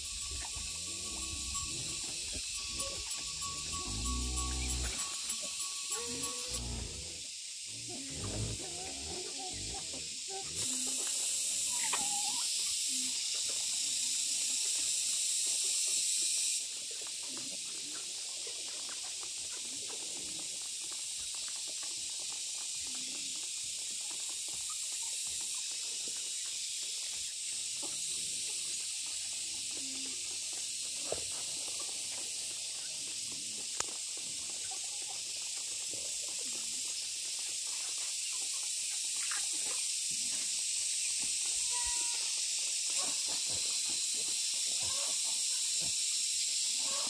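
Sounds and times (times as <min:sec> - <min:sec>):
sharp ticks: 0:00.0 - 0:06.8
steady high-pitched hiss: 0:00.0 - 0:47.0
piglets grunting: 0:05.9 - 0:10.8.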